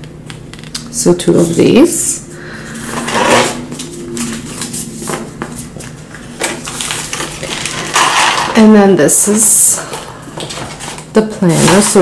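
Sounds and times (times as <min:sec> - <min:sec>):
faint steady hum: 0:00.0 - 0:12.0
paper and plastic rustling: 0:02.9 - 0:08.7, 0:09.8 - 0:12.0.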